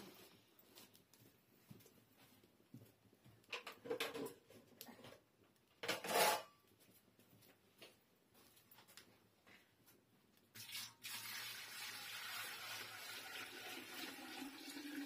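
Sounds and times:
metal utensils clattering: 5.8 - 6.6.

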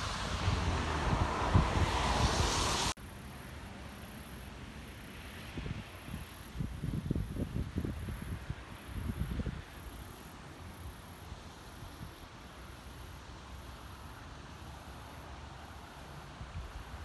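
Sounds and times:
wind gust buffeting microphone: 0.0 - 2.9
faint wind: 0.0 - 17.0.

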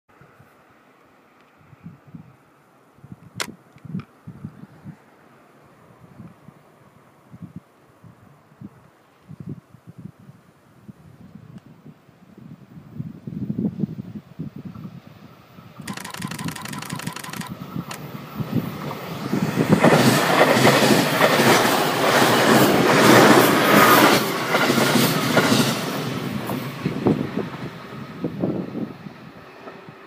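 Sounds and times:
train passing rumble: 14.5 - 30.0.

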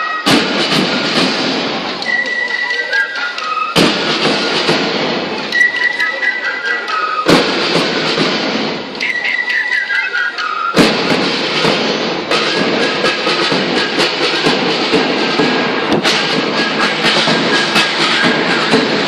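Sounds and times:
high wind-instrument melody: 0.0 - 19.0
loud dense drumming: 0.2 - 2.0, 3.8 - 5.5, 7.3 - 9.0, 10.8 - 19.0.

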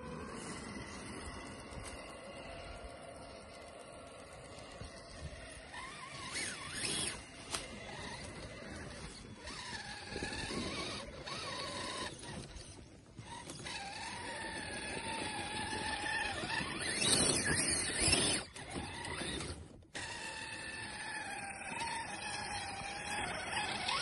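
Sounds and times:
rc car motor whining: 0.0 - 24.0.

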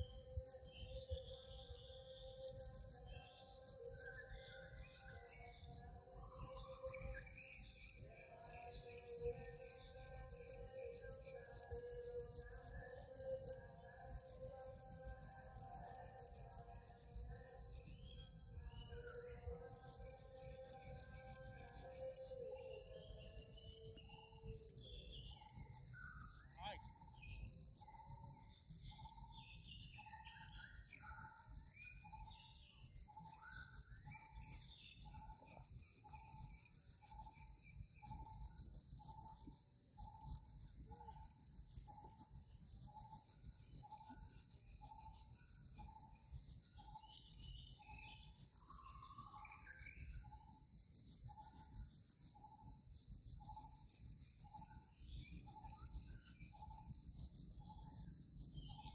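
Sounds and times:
insects trilling: 0.0 - 58.9
bird chirps: 19.8 - 50.5.

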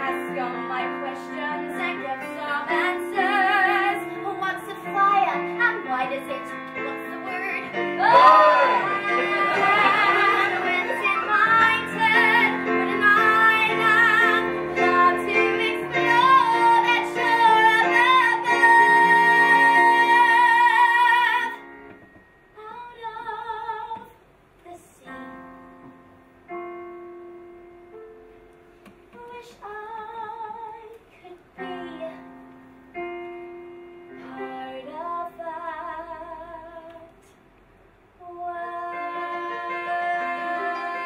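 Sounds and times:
woman singing with vibrato: 0.0 - 21.6, 38.2 - 41.0
sparse piano chords: 0.0 - 22.6, 38.6 - 41.0.

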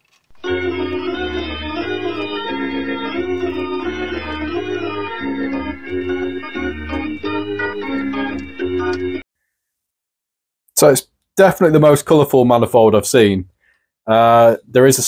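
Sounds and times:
background music with held chords: 0.4 - 9.2.

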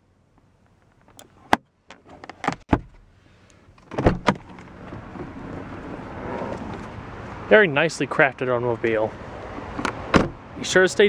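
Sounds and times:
rush of outside noise: 0.0 - 11.0
car door handle and latch clunks: 1.1 - 3.0, 3.8 - 5.3, 9.6 - 10.4.

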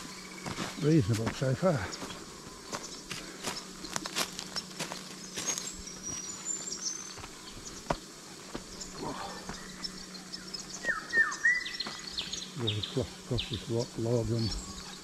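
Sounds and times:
footsteps crunching on leaves and stones: 0.0 - 12.9
birds chirping: 0.0 - 15.0
bird whistled call: 10.8 - 12.3.

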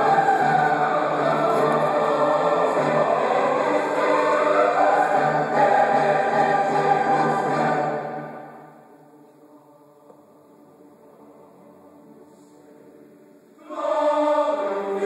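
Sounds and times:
symphony orchestra playing: 0.0 - 8.6
choir singing: 0.0 - 15.0.

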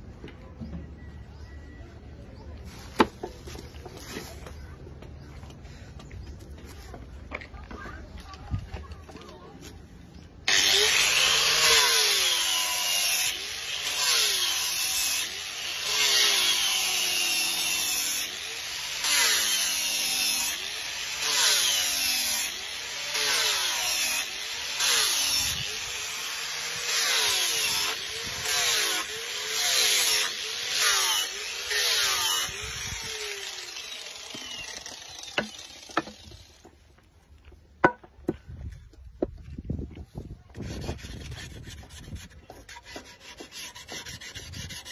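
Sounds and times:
angle grinder grinding wood: 10.5 - 36.9, 40.5 - 44.9
wood knocks: 37.8 - 38.4.

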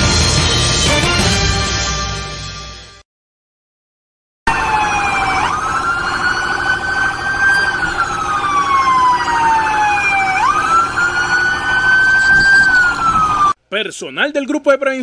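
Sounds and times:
police siren wailing: 4.5 - 13.6.

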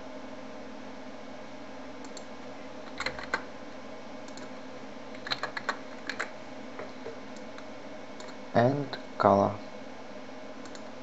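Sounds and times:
steady background hum: 0.0 - 11.0
keyboard typing: 2.9 - 3.5, 5.2 - 6.3.

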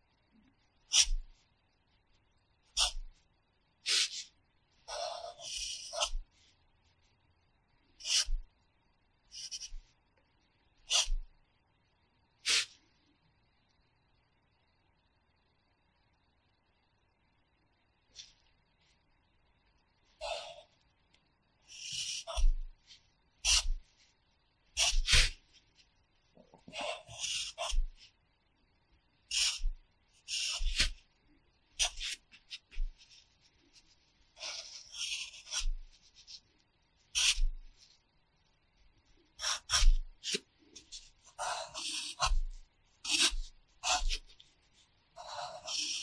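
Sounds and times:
pencil scratching on paper: 0.9 - 1.4, 2.7 - 3.2, 3.8 - 6.4, 8.0 - 8.5, 9.3 - 9.9, 10.8 - 11.3, 12.4 - 12.8, 20.2 - 20.8, 21.6 - 24.0, 24.7 - 25.5, 26.6 - 28.2, 29.3 - 31.0, 31.8 - 38.0, 39.4 - 46.0.

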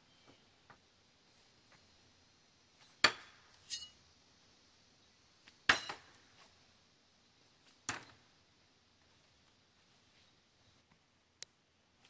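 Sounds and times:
light metallic clink: 3.7 - 4.0.

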